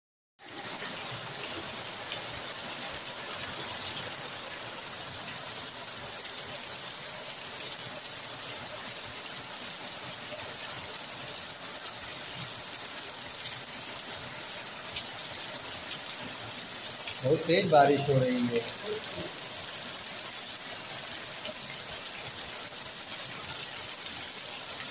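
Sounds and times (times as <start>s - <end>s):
heavy rain on concrete and trees: 0.4s - 24.9s.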